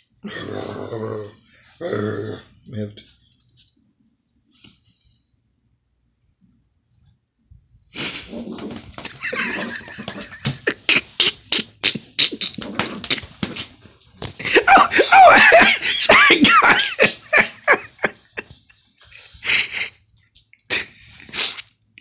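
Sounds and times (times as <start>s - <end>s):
high-pitched laughter: 9.0s - 11.7s, 14.4s - 18.7s.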